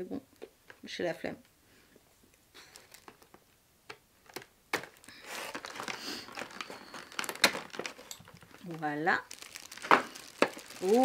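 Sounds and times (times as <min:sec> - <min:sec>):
plastic packaging crinkling: 0:02.6 - 0:03.5, 0:04.2 - 0:11.0.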